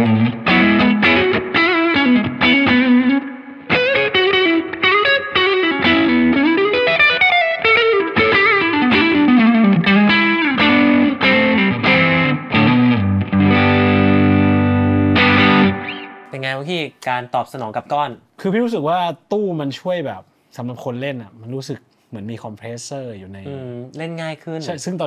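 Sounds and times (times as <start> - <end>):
electric guitar lead with reverb: 0.0 - 16.3.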